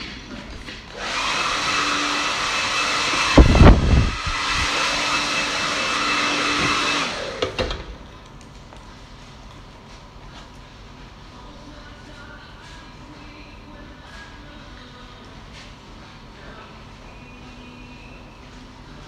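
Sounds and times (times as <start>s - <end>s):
hair dryer whining: 0.9s - 7.9s.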